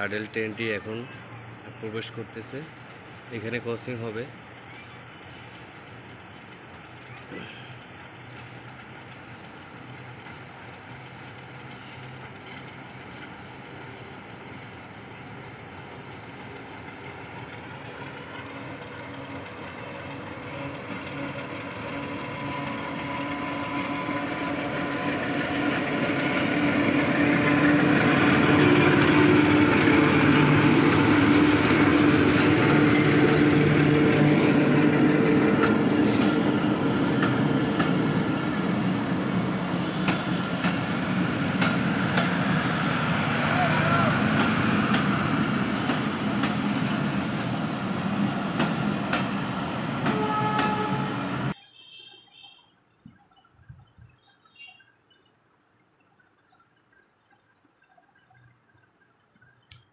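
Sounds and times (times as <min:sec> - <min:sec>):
train coaches rumbling past: 0:00.0 - 0:51.6
diesel locomotive engine: 0:00.0 - 0:51.8
train wheel clicks: 0:08.1 - 0:13.8, 0:35.1 - 0:36.4, 0:40.0 - 0:42.4, 0:44.4 - 0:46.7.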